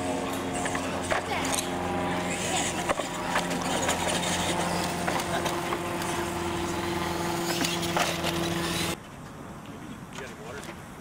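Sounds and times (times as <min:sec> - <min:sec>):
engine-like hum: 0:00.0 - 0:09.5
wheels clacking on ramps: 0:00.2 - 0:09.0.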